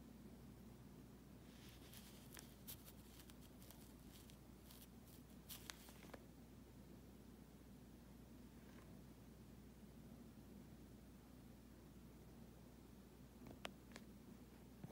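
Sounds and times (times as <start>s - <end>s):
fingers handling a coin: 1.5s - 6.2s.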